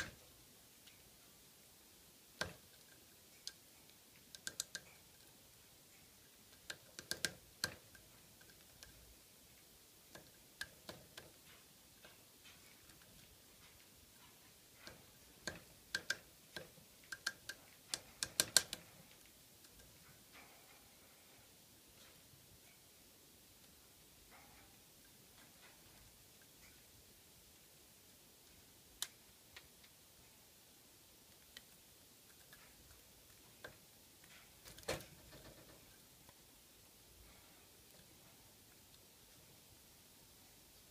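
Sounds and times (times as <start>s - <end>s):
woodpecker tapping: 2.4s - 5.1s, 6.6s - 9.0s, 14.2s - 18.9s
woodpecker tapping on log: 6.6s - 7.8s.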